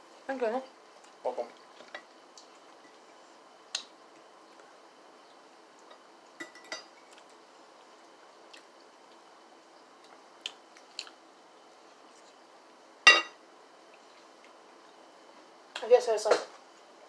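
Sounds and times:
fork clinking on plate: 13.1 - 13.4.

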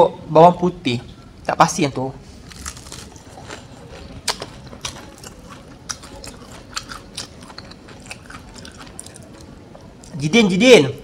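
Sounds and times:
chewing crunchy fried chicken: 2.3 - 10.2.

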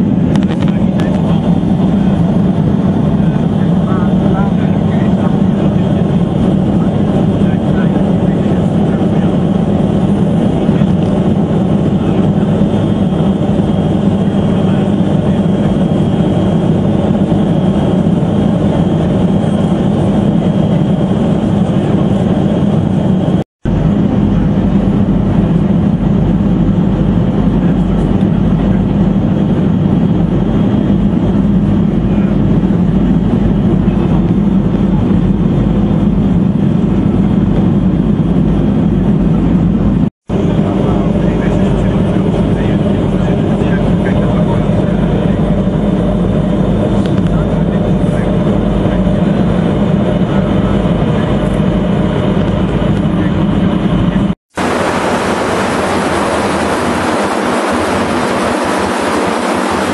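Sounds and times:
aircraft cabin engine hum: 0.0 - 59.9
faint high whine: 38.7 - 59.9.

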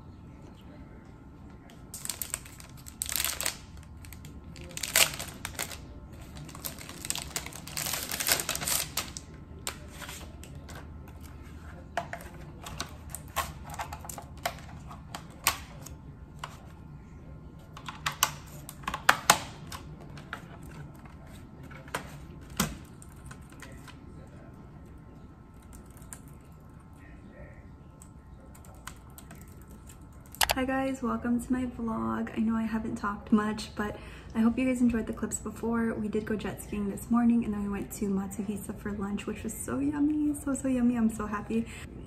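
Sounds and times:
paper and plastic wrapping rustling: 1.9 - 16.7.

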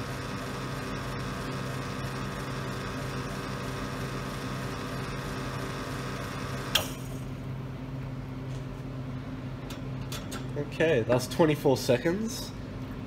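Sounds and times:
espresso machine pump humming: 0.0 - 8.1.

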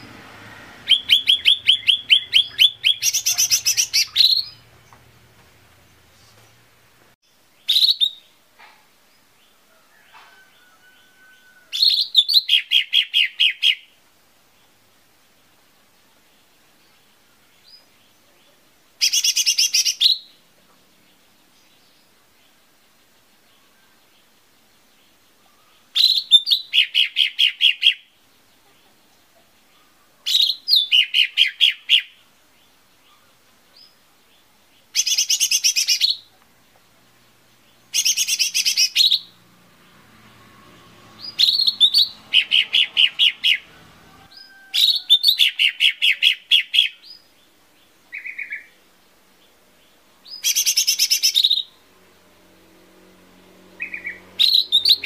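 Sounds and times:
bird singing sharp repeated notes: 0.8 - 8.4, 11.8 - 14.0, 16.4 - 20.4, 21.0 - 28.5, 29.7 - 36.4, 37.5 - 40.0, 41.1 - 43.7, 44.3 - 51.8, 53.7 - 55.0.

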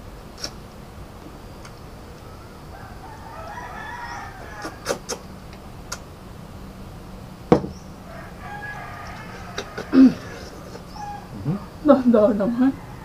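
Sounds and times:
rooster crowing: 2.2 - 5.0, 8.0 - 11.7, 12.6 - 13.0
loud knock: 7.5 - 7.8.

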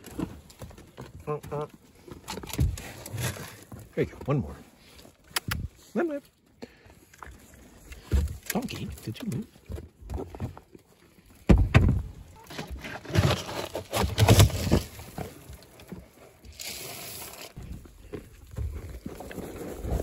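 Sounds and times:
knocks and bumps: 11.4 - 14.9.

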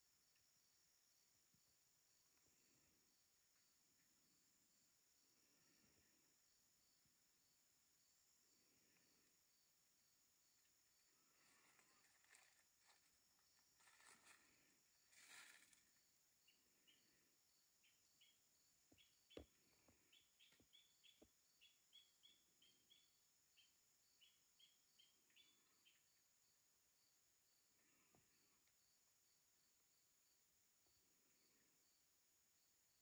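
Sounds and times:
rustling: 11.3 - 16.0.

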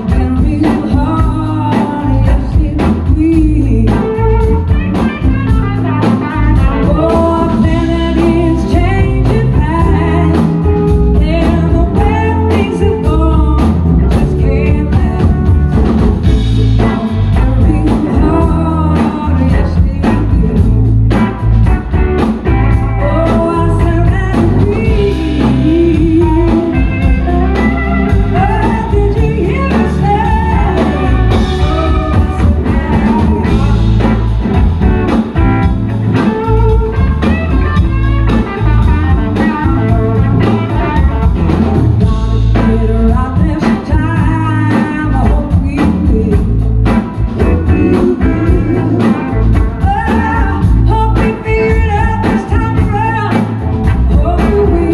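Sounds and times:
drums: 0.0 - 54.9
electric guitars: 0.0 - 54.9
woman singing lead: 0.0 - 54.9.

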